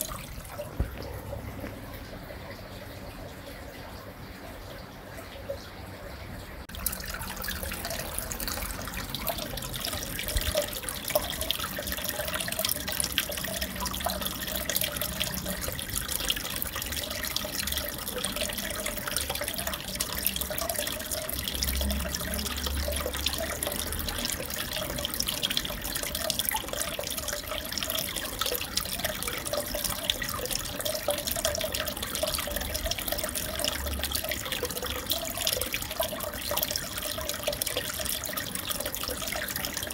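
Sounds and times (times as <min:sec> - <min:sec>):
bubbling clicks: 0:00.0 - 0:02.8
aquarium water splashing: 0:00.0 - 0:39.9.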